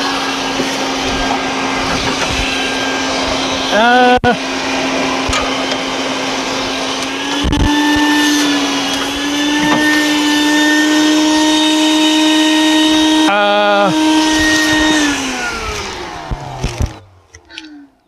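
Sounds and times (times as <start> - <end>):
shop vacuum running: 0.0 - 17.8
hose sucking debris: 4.9 - 17.0.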